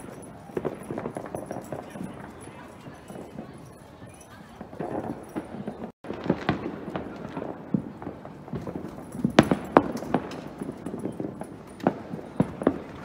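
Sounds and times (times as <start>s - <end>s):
distant fireworks popping: 0.0s - 13.0s
sharp firework cracks: 4.8s - 13.0s.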